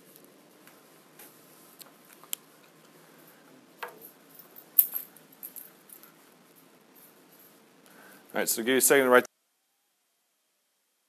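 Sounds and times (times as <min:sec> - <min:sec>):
keys jingling: 0:03.9 - 0:07.6.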